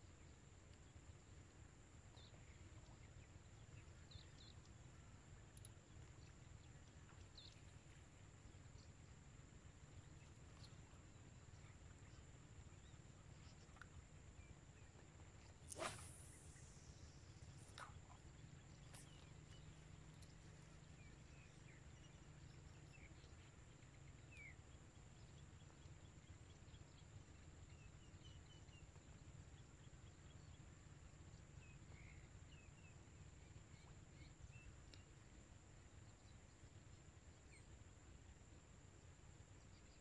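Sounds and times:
low steady rumble: 0.0 - 40.0
faint chirps: 15.4 - 23.5
thin high whine: 15.7 - 17.9.

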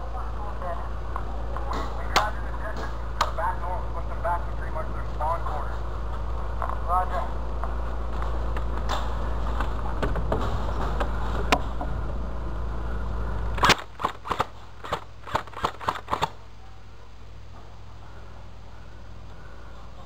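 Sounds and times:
low rumble: 0.0 - 13.7
airsoft gun shots: 13.6 - 16.4.

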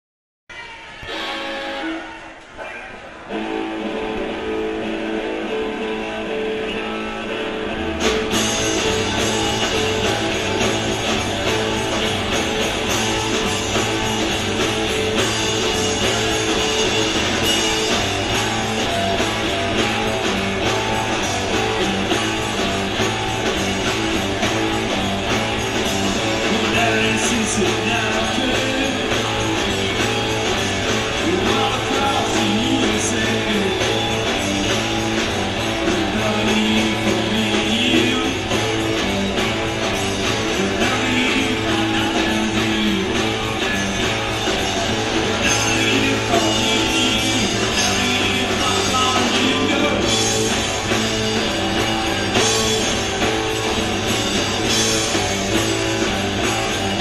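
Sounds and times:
electric guitar: 0.5 - 57.0
live rock band playing: 0.6 - 57.0.

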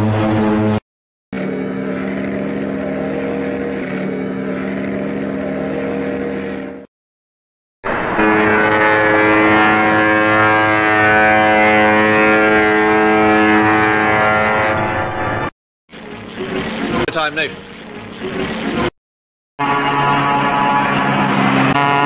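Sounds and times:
deep ship horn blast: 0.0 - 0.8, 1.4 - 6.9, 7.9 - 15.5, 19.6 - 22.0.

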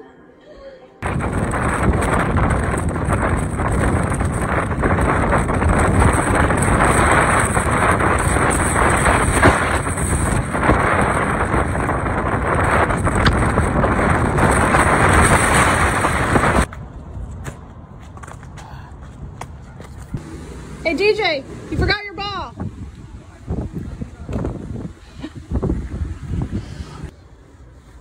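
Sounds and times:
wind buffeting microphone: 1.0 - 18.0, 21.7 - 27.1.

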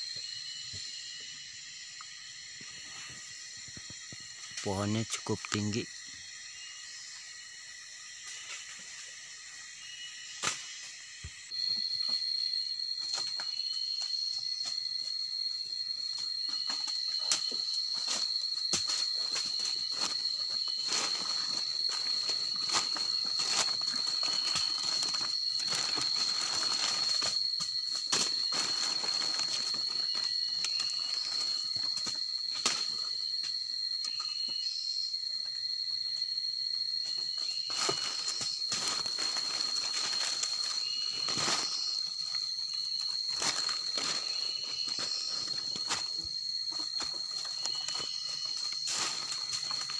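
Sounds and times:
high-pitched insect drone: 0.0 - 49.9
dry leaves crackling: 19.1 - 31.7, 37.7 - 46.2, 46.9 - 49.9.

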